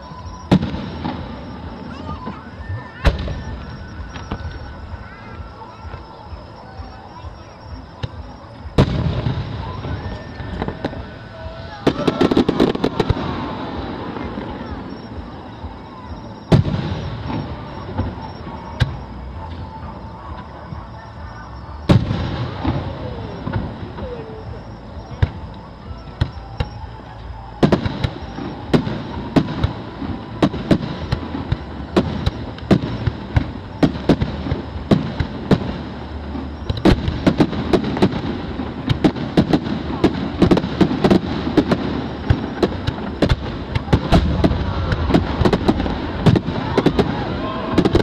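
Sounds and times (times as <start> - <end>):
fireworks bangs and crackles: 0.0 - 48.0.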